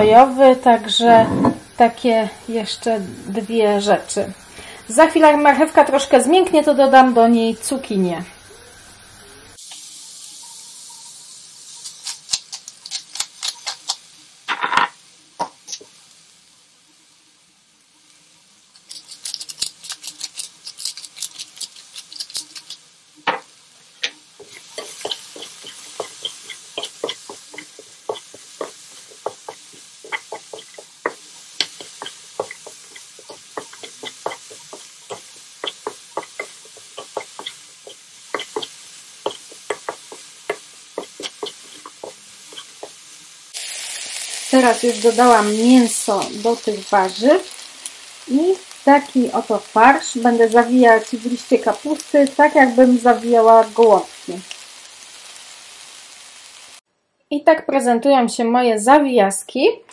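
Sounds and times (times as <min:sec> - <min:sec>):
vegetables sizzling in frying pan: 0:00.0 - 0:56.8
fork clicking and scraping pan: 0:11.8 - 0:14.2, 0:18.8 - 0:22.8, 0:24.4 - 0:43.0.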